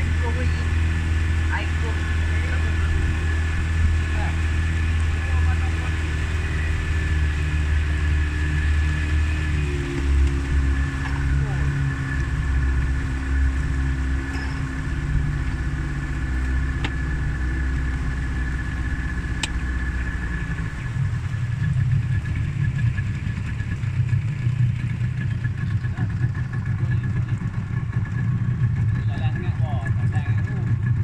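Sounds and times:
outboard motor running: 0:00.0 - 0:31.0.

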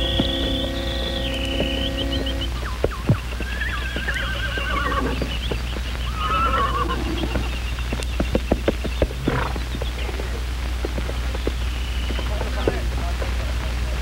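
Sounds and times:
horses whinnying: 0:00.0 - 0:07.6, 0:08.6 - 0:10.5
hooves clopping on hard ground: 0:00.0 - 0:14.0.

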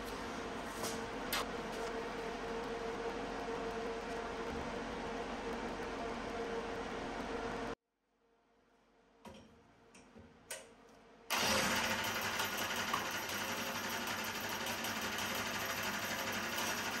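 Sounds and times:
kart engine running: 0:11.3 - 0:17.0.

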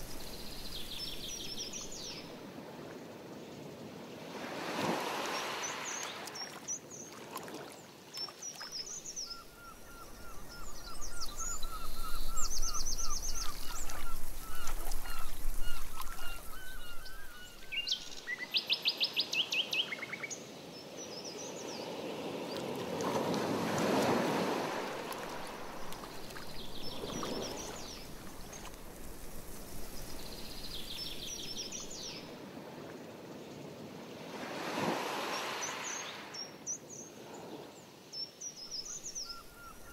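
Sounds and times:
paddle strokes swishing through water: 0:04.4 - 0:08.8, 0:11.9 - 0:17.3, 0:22.6 - 0:30.7
birds singing: 0:08.2 - 0:20.4, 0:25.3 - 0:28.7, 0:38.2 - 0:39.9.

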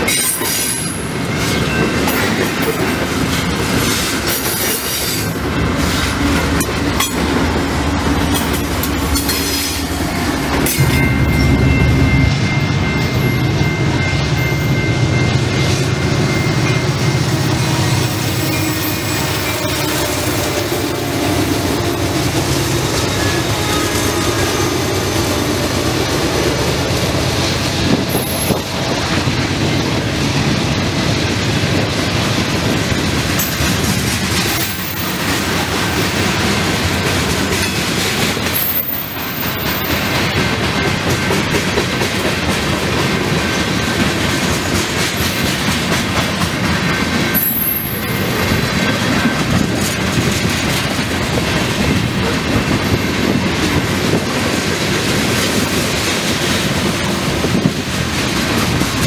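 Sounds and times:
clickety-clack over rail joints: 0:00.0 - 0:17.1, 0:17.7 - 0:59.0
diesel locomotive engines: 0:00.0 - 0:59.0
train wheels rumbling on rail: 0:00.0 - 0:59.0
high wheel squeals: 0:47.3 - 0:48.6.

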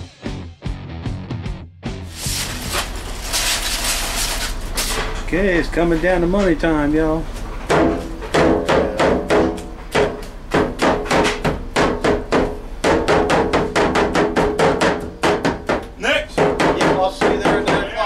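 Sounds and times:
cleavers chopping meat on wood: 0:07.7 - 0:17.9.

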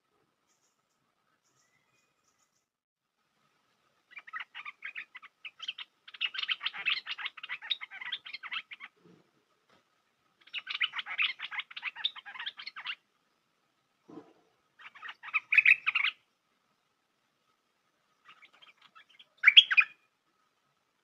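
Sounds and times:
bird chattering calls: 0:04.1 - 0:09.0, 0:10.5 - 0:13.0, 0:14.8 - 0:16.2, 0:18.3 - 0:20.0.

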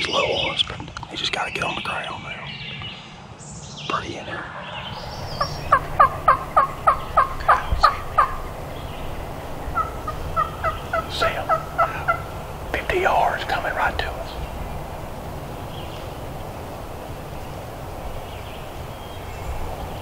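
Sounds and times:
wild turkey yelping: 0:04.4 - 0:13.6.

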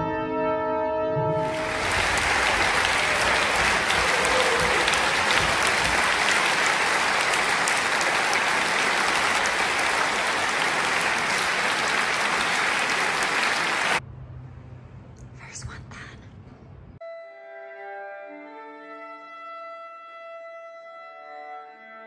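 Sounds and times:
audience applauding: 0:01.4 - 0:14.0.

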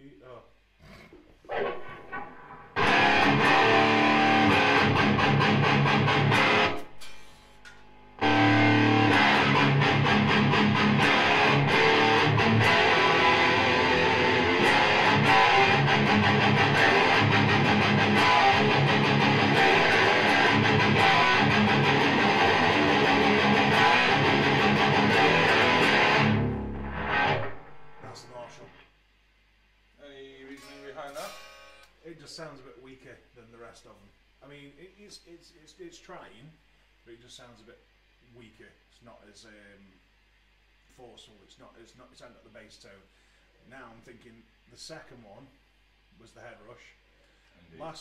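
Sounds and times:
distorted electric guitar riffs: 0:01.4 - 0:28.8.

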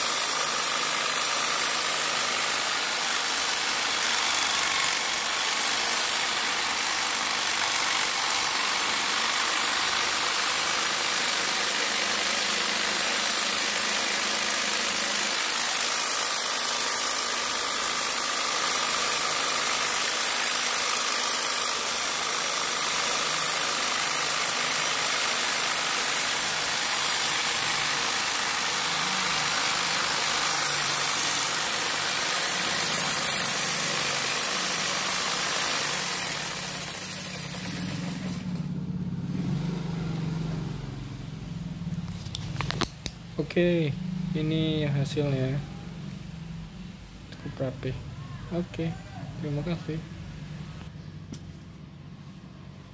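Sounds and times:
electric jigsaw cutting foam: 0:00.0 - 0:41.0.

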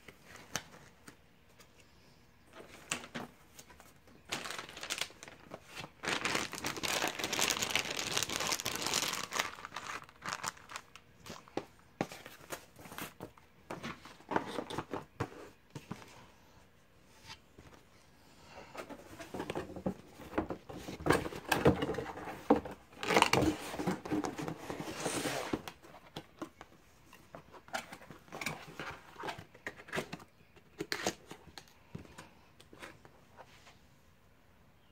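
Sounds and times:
plastic wrapping crinkling: 0:04.1 - 0:11.5.

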